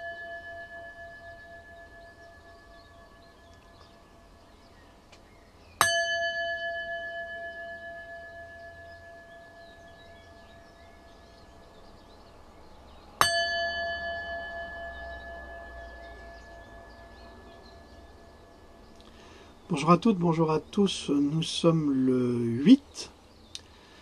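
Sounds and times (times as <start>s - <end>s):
metal bell ringing: 0.0s - 3.3s, 5.8s - 10.0s, 13.2s - 18.4s.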